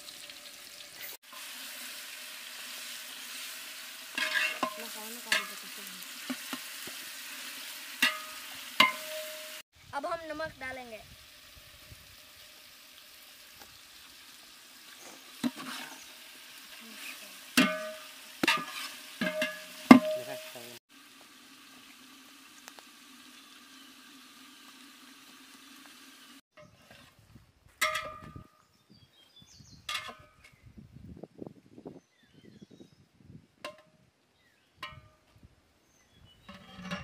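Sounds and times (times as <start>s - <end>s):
chicken sizzling in pot: 0.0s - 26.4s
metal spatula scraping and clanking: 4.1s - 7.0s, 8.0s - 9.6s, 15.0s - 16.0s, 17.0s - 20.5s, 29.9s - 30.5s, 36.4s - 37.0s.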